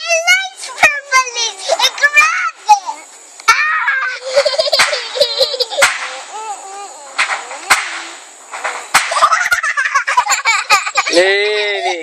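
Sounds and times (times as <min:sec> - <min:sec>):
sharp clicks and cracks: 0:04.4 - 0:05.0, 0:05.8 - 0:06.3, 0:07.2 - 0:09.5
high wavering vocal sounds: 0:05.0 - 0:08.2.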